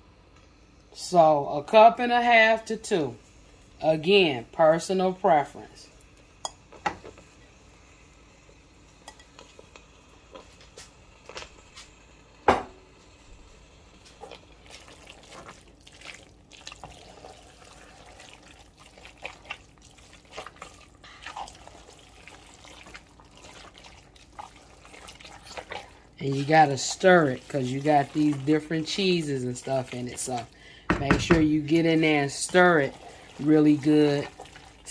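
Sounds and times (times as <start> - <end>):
wet sauce sounds: 2.3 - 12.3, 12.9 - 34.9
utensil knocking against pan: 30.9 - 31.5.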